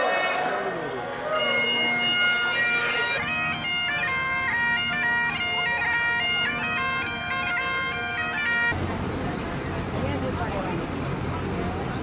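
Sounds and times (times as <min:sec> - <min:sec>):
bagpipe playing a tune: 0:01.4 - 0:08.8.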